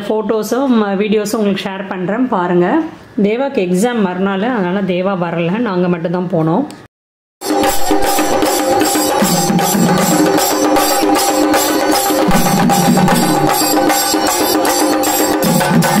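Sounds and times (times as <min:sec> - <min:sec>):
drums beating fast rhythm: 0:07.4 - 0:16.0
held pitched tones: 0:07.5 - 0:15.8.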